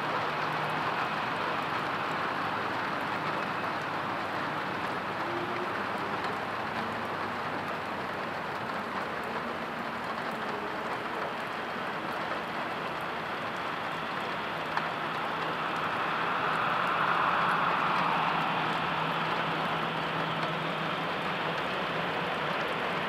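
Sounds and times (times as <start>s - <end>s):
rain falling: 0.0s - 23.0s
rushing noise: 11.6s - 23.0s.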